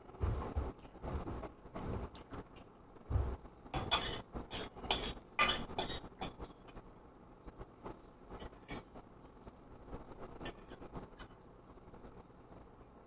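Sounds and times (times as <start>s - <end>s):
fork clinking on ceramic bowl: 3.8s - 6.5s.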